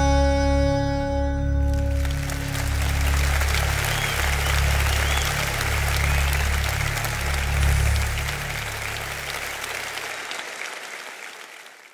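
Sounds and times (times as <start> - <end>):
held bass note: 0.0 - 5.8
audience applauding: 1.6 - 11.9.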